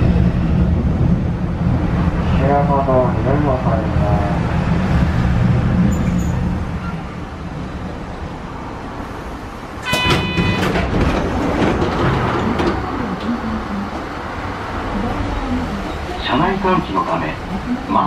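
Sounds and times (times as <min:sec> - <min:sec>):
tram rumbling along track: 0:00.0 - 0:18.0
short horn toot: 0:09.8 - 0:10.8.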